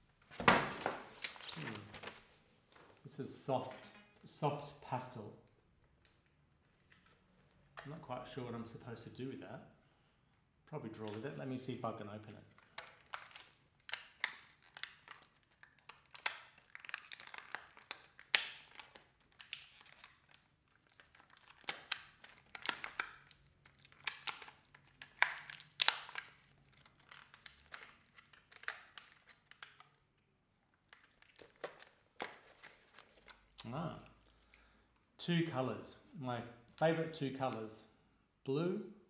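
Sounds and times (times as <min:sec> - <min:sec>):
packaging crinkling and tearing: 0:00.4 - 0:02.3, 0:12.4 - 0:30.2, 0:30.8 - 0:34.7.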